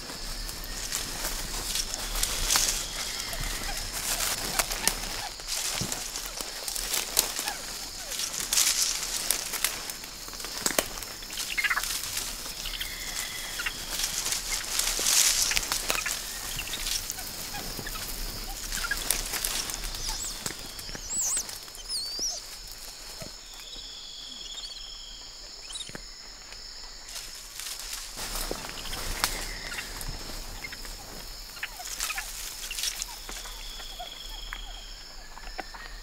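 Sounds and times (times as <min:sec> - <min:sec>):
clicks and rustles in branches: 0:00.0 - 0:23.4, 0:27.1 - 0:34.7
high-pitched insect drone: 0:00.0 - 0:26.3.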